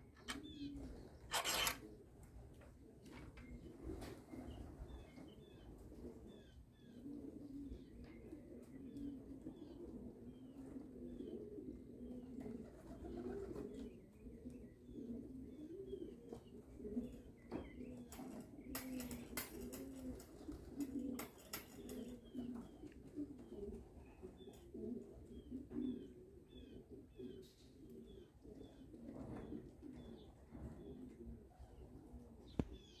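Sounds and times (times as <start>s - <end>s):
pigeons cooing: 0.0s - 33.0s
sharp clicks: 1.3s - 1.8s.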